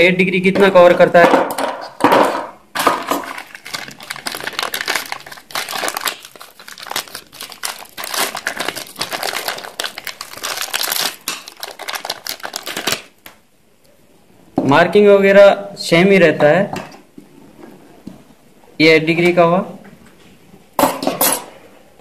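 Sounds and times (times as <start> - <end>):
plastic packet crinkling: 3.0 - 13.4.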